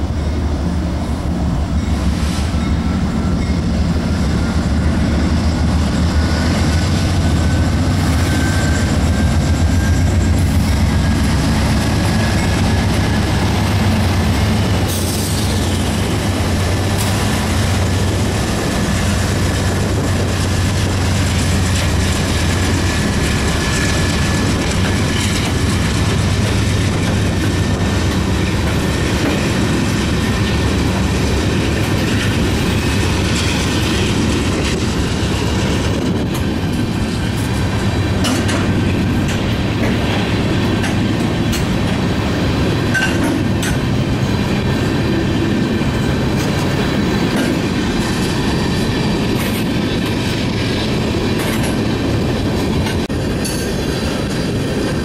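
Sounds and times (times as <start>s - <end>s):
locomotive engine rumble: 0.0s - 55.0s
high wheel squeal: 1.8s - 13.3s
wheels clicking over rail joints: 10.0s - 42.1s, 42.7s - 44.0s, 44.6s - 55.0s.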